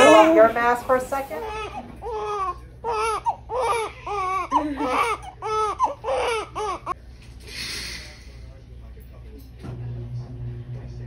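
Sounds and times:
newborn baby crying: 0:01.4 - 0:07.0.

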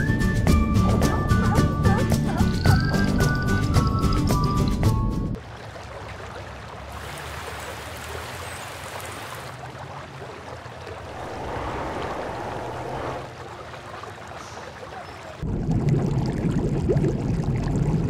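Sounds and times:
rushing water-like noise: 0:05.4 - 0:15.4.

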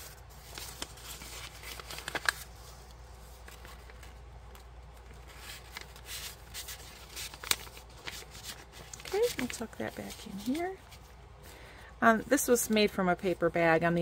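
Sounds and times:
paper rustling and crinkling: 0:00.0 - 0:11.2.

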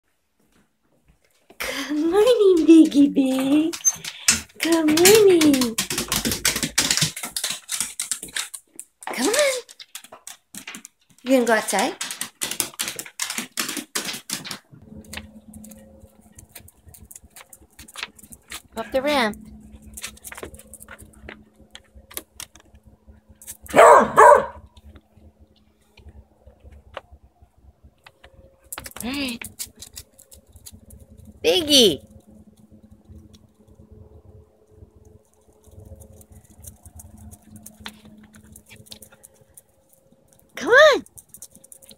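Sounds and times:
dog claws clicking on wood floor: 0:01.7 - 0:25.1, 0:28.0 - 0:33.9, 0:34.8 - 0:41.9
steady low hum: 0:14.7 - 0:41.9.

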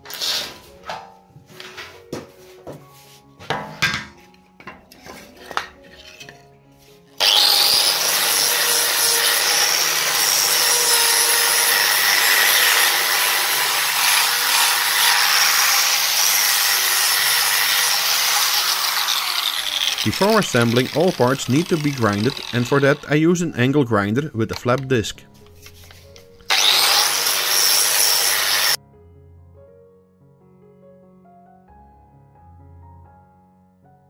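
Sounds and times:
background music: 0:00.0 - 0:34.0
angle grinder sanding wood: 0:06.8 - 0:24.8, 0:25.6 - 0:28.8.

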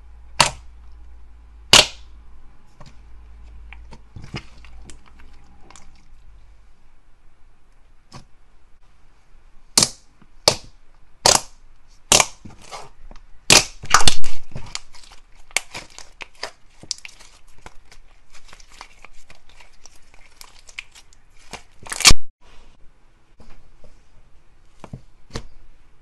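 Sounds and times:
slime crackling: 0:09.8 - 0:22.2.

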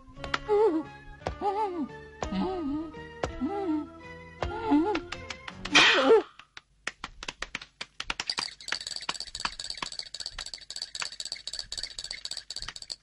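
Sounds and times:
rapid irregular clicking and tapping: 0:06.4 - 0:13.0.

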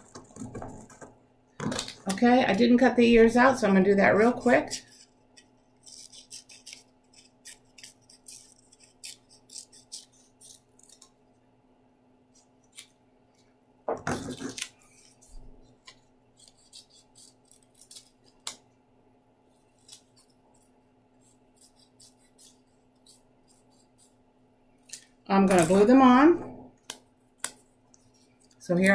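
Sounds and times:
scissors snipping paper: 0:04.2 - 0:11.2, 0:14.2 - 0:18.6, 0:19.5 - 0:20.3, 0:21.2 - 0:24.2
paper handling rustle: 0:14.0 - 0:16.5.

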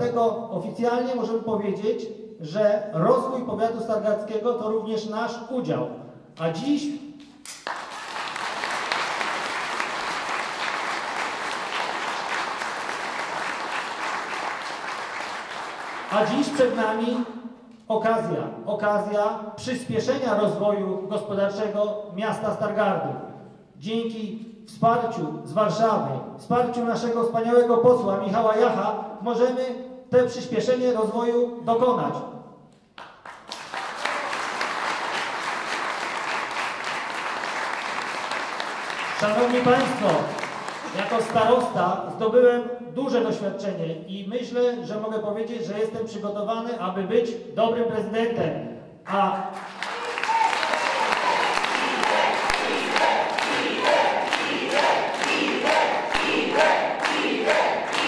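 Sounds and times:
audience applauding: 0:07.5 - 0:16.8, 0:33.0 - 0:41.6, 0:49.5 - 0:58.0.

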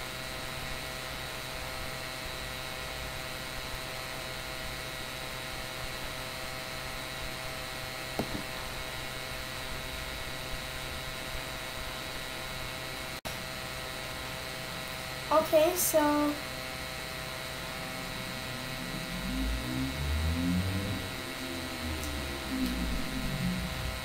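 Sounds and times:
electrical hum with hiss: 0:00.0 - 0:24.0
steady tones: 0:16.5 - 0:24.0.

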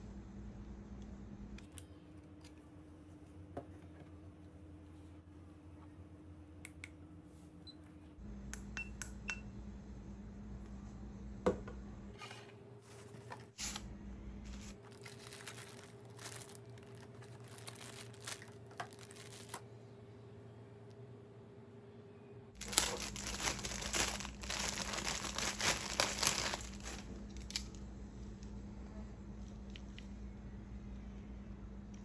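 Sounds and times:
faint steady hum: 0:00.0 - 0:32.0
plastic bags crinkling: 0:14.6 - 0:19.6, 0:22.6 - 0:27.8.

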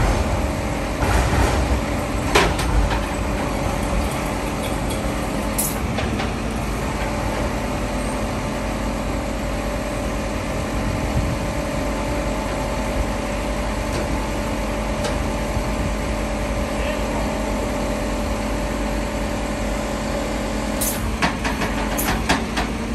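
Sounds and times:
tow truck engine running: 0:00.0 - 0:22.9.

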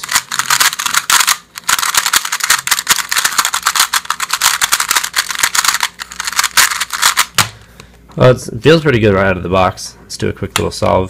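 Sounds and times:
plastic puzzle cube clicking: 0:00.0 - 0:07.5.

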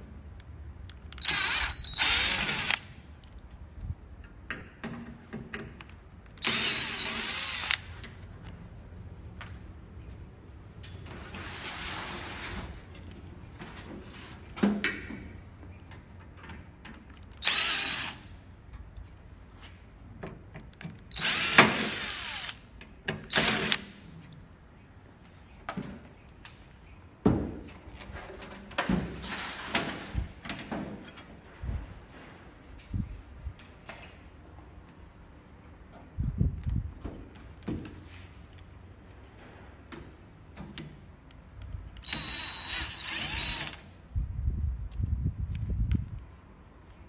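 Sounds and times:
cordless drill driving screws: 0:01.1 - 0:03.0, 0:06.4 - 0:07.9, 0:17.4 - 0:18.3, 0:21.1 - 0:22.7, 0:23.3 - 0:24.0, 0:42.0 - 0:43.9.

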